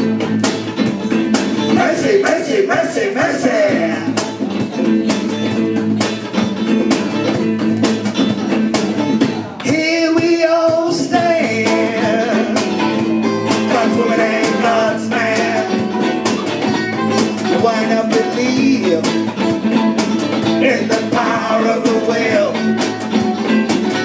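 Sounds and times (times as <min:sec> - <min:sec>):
drum beat: 0:00.0 - 0:24.0
electric guitars: 0:00.0 - 0:24.0
person singing: 0:09.4 - 0:16.0, 0:17.4 - 0:19.2, 0:20.6 - 0:22.8.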